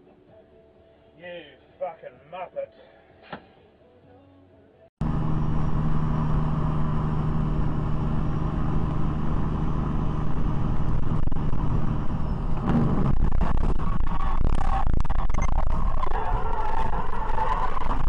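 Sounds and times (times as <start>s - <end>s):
truck diesel engine drone: 5.0s - 18.0s
tyre road rumble: 5.0s - 18.0s.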